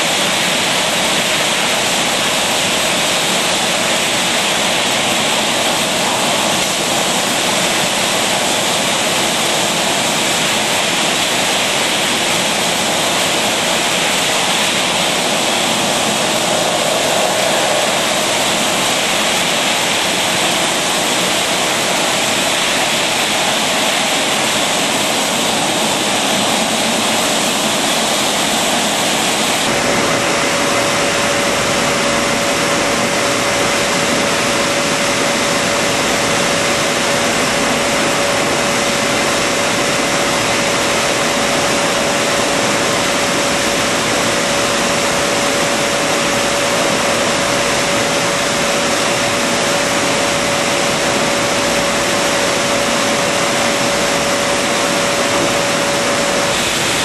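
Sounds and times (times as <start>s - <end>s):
machinery hissing whoosh: 11.6s - 31.0s
rumbling machine hum: 12.1s - 33.6s.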